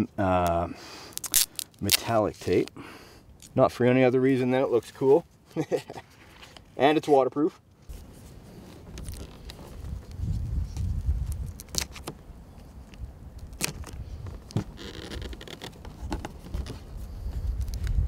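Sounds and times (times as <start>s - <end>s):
metallic tape crinkling: 1.1s - 2.7s, 7.9s - 12.1s.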